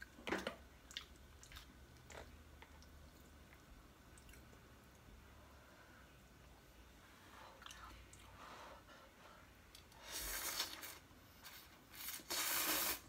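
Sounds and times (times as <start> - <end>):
person slurping noodles: 10.1 - 13.0.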